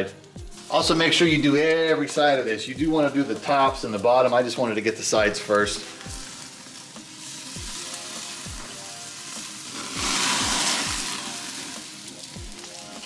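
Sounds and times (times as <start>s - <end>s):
fat sizzling on charcoal: 0.0s - 13.0s
flare-up hiss: 4.9s - 13.0s.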